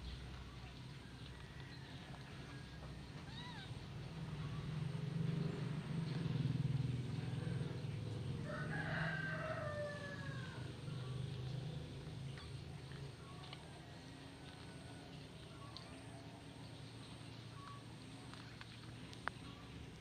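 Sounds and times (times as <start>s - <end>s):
low steady hum: 0.0s - 20.0s
rooster crowing: 8.4s - 10.8s.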